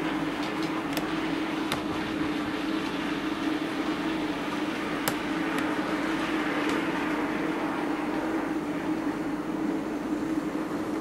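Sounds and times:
sharp clicks: 5.0s - 5.7s.

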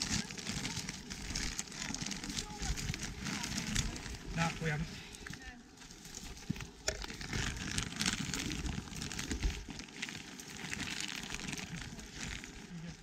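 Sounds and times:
dry twigs and leaves crackling: 0.0s - 13.0s.

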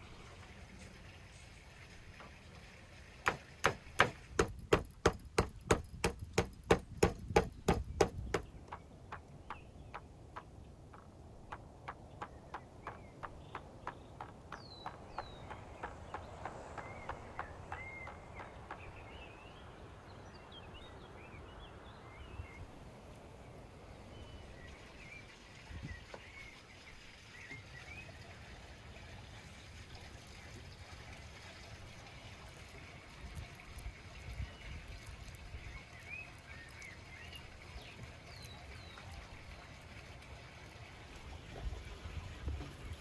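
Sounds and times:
knife chopping on wooden board: 3.3s - 9.2s
birds chirping: 3.3s - 22.7s, 33.6s - 39.7s.

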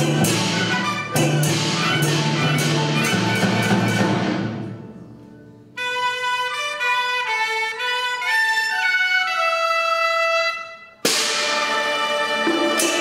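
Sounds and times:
orchestra playing: 0.0s - 13.0s
sharp percussive hit: 11.0s - 13.0s.

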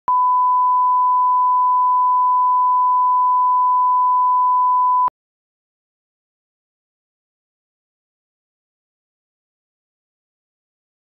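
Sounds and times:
sine test tone: 0.1s - 5.1s.

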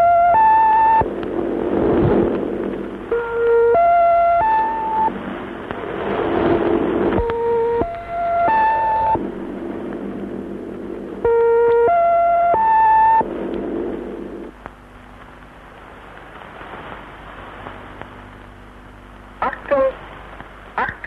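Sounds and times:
electronic tones stepping up: 0.0s - 1.1s, 3.1s - 5.2s, 7.0s - 9.6s, 11.2s - 14.5s
faint radio static: 0.0s - 21.0s
radio hiss and hum: 0.0s - 21.0s.

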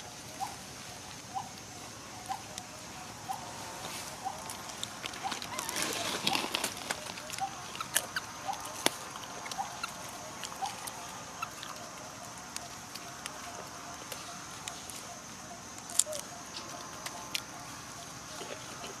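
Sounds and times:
clicks and crackles of eating: 4.3s - 15.1s, 15.7s - 19.0s.

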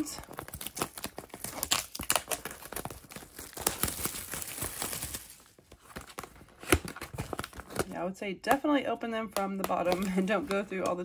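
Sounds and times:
plastic wrap crinkling: 0.0s - 7.9s.

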